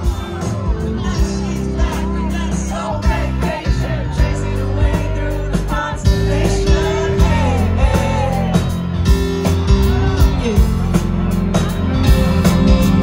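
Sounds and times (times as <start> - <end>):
man singing lead vocal: 0.0 - 8.9, 9.7 - 11.1
rock band playing live: 0.0 - 13.0.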